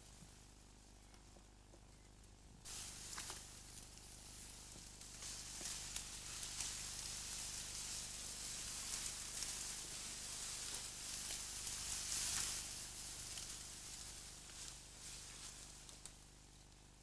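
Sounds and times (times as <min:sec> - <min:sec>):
grass rustling from footsteps: 0:02.6 - 0:16.6
light ticks and snaps: 0:15.8 - 0:16.9.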